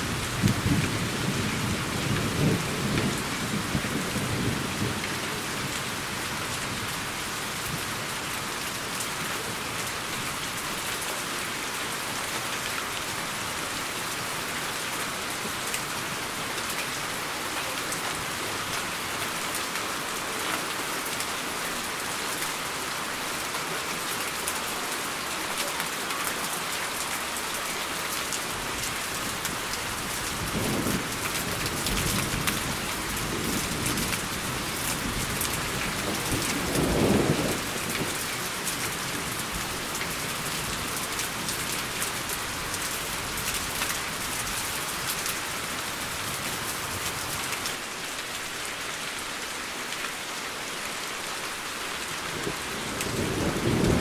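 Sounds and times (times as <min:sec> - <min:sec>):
steady rain: 0:00.0 - 0:54.0
thunder rumbling: 0:52.3 - 0:54.0.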